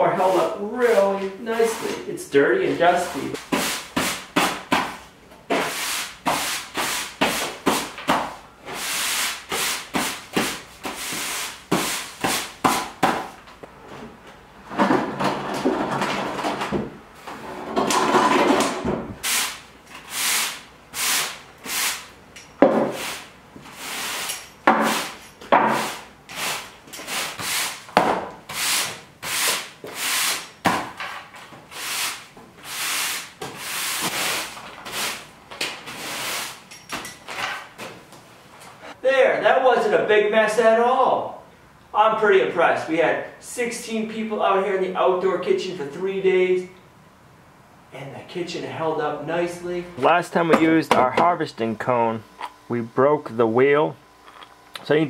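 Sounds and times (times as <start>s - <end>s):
push broom sweeping concrete: 0.0s - 13.0s, 19.2s - 22.1s, 22.7s - 30.6s, 31.6s - 36.6s.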